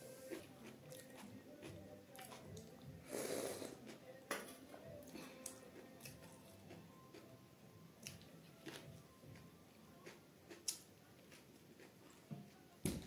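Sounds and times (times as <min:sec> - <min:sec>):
faint eating clicks: 0:10.0 - 0:12.0.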